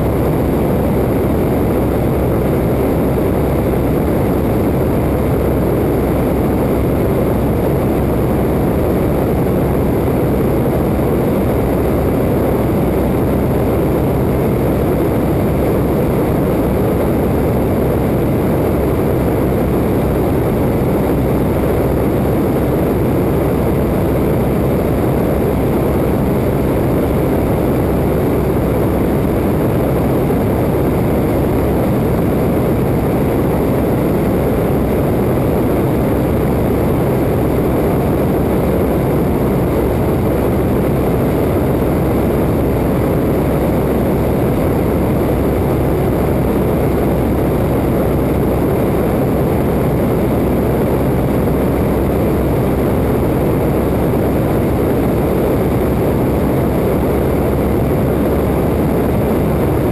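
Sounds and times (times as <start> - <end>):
plane engine and propeller: 0.0 - 59.9
wind rushing over microphone: 0.0 - 59.9.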